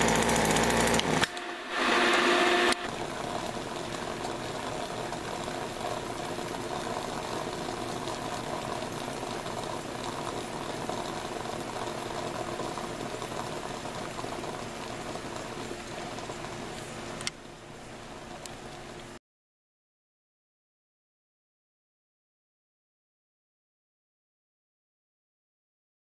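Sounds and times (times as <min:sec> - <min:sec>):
espresso machine hissing: 0:00.0 - 0:14.6.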